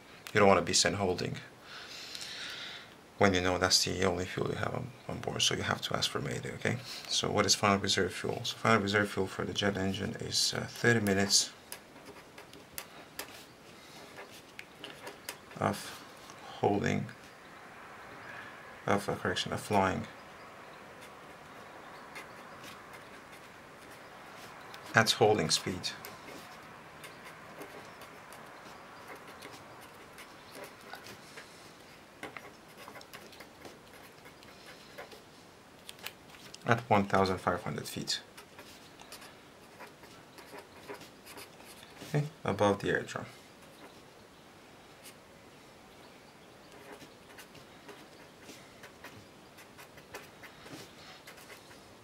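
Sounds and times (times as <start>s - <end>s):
marker scratching on paper: 11.7s - 15.7s, 21.0s - 31.6s, 32.2s - 35.3s, 38.3s - 42.2s, 46.7s - 51.9s.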